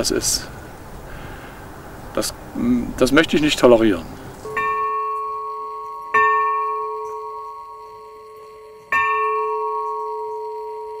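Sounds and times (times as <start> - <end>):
bronze bell ringing: 4.5 - 11.0.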